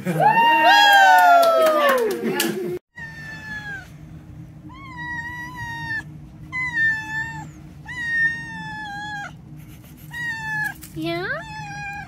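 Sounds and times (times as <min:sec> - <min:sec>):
cat meowing: 0:03.0 - 0:03.9, 0:04.7 - 0:09.4, 0:10.1 - 0:12.0.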